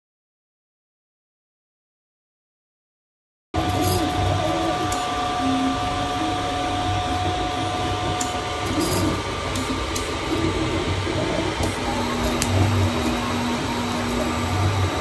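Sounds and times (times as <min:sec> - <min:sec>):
cooling fans whirring: 0:03.6 - 0:15.0
stepper motors humming: 0:03.6 - 0:15.0.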